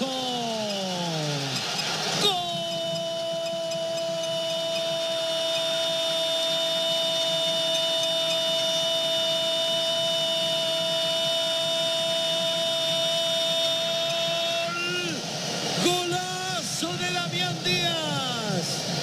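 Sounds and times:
stadium crowd cheering: 0:00.0 - 0:19.0
commentator shouting goal: 0:02.2 - 0:03.9, 0:13.6 - 0:15.2, 0:15.8 - 0:18.7.

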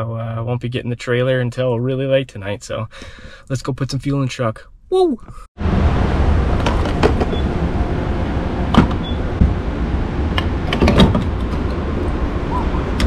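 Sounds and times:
steady low rumble: 0:05.6 - 0:13.0.

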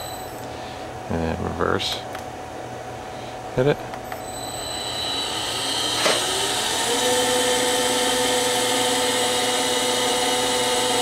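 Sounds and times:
milling machine motor whining: 0:04.1 - 0:11.0.

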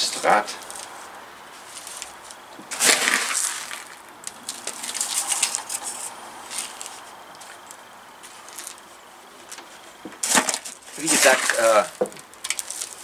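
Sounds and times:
grains crunching and clicking: 0:01.6 - 0:08.8, 0:09.4 - 0:13.0
grains pouring into plastic pot: 0:02.8 - 0:04.0.

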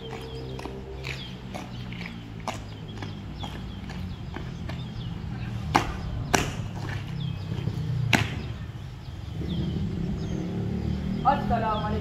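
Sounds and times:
boots marching on asphalt: 0:00.0 - 0:09.6
boots stamping on asphalt: 0:00.0 - 0:09.6.

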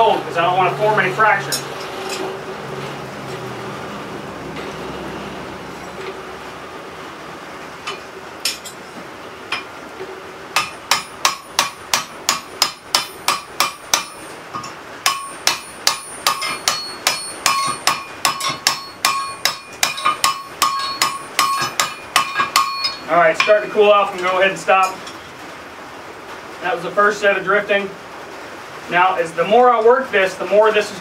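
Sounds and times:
hammer blows on metal ringing: 0:15.0 - 0:23.6.

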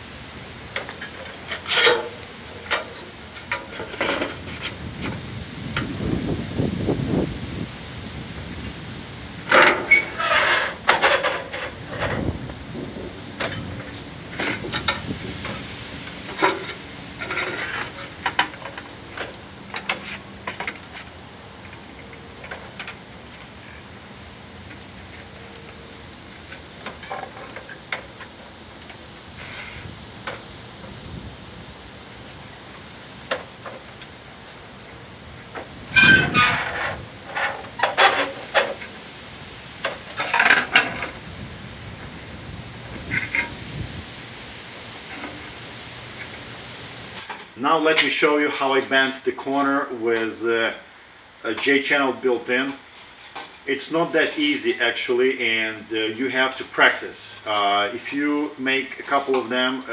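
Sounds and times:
metal sheet rattling and scraping: 0:01.0 - 0:05.2, 0:09.4 - 0:21.0, 0:35.9 - 0:38.8, 0:42.9 - 0:43.6.

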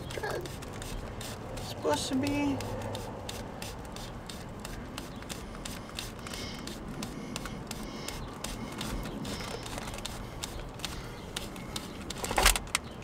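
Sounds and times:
oil filter clicking and scraping: 0:00.0 - 0:13.0.

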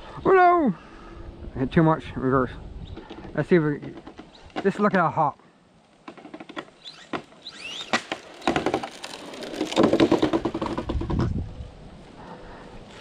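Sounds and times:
wheels rattling on asphalt: 0:02.8 - 0:05.1, 0:05.9 - 0:13.0
toy car motor whine: 0:06.8 - 0:10.4.

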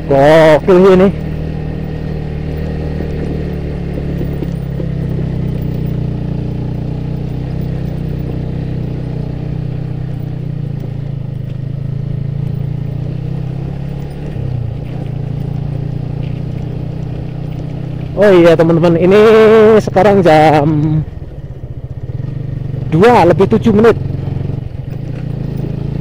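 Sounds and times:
motorcycle engine under load: 0:00.0 - 0:26.0.

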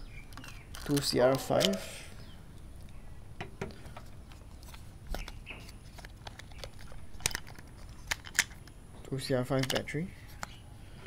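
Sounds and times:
plastic battery holder rattling: 0:05.1 - 0:08.8, 0:09.4 - 0:10.6.

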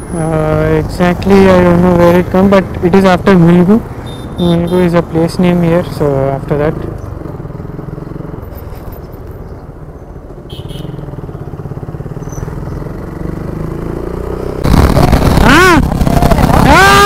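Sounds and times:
motorcycle engine running: 0:10.4 - 0:17.0.

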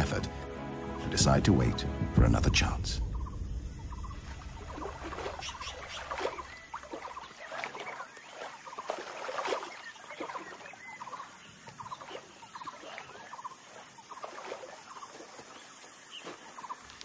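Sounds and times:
chattering animal calls: 0:03.2 - 0:08.1.

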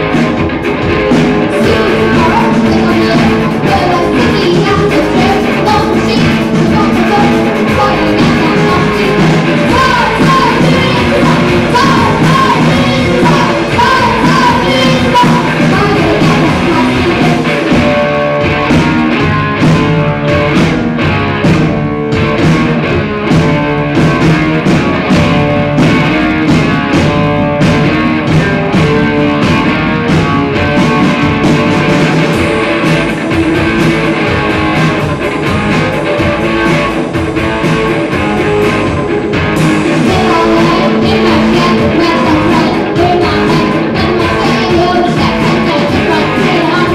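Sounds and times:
bass guitar: 0:00.0 - 0:46.9
drum kit: 0:00.0 - 0:46.9
electric guitar: 0:00.0 - 0:46.9
person singing into a microphone: 0:01.5 - 0:17.7, 0:40.0 - 0:46.9.

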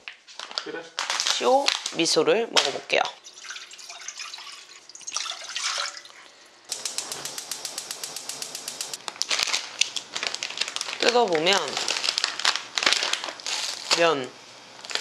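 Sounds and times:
plastic packet rustling: 0:00.1 - 0:02.2, 0:09.0 - 0:14.2, 0:14.8 - 0:15.0
water pouring into a saucepan: 0:03.1 - 0:06.6
gas hissing: 0:06.1 - 0:09.1
gas burner igniter clicking: 0:06.7 - 0:09.0.

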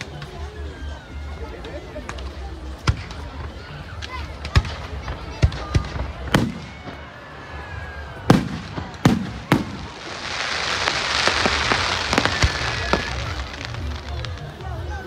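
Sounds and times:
hissing crackle of fireworks: 0:00.0 - 0:15.0.

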